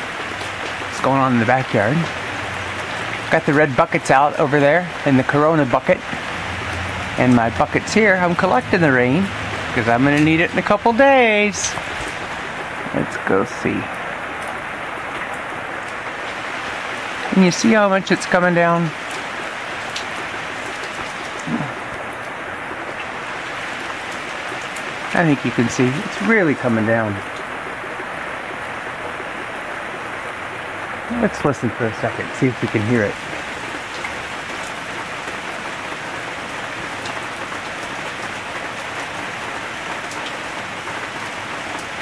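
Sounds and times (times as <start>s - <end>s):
heavy rain on patio: 0.0s - 42.0s.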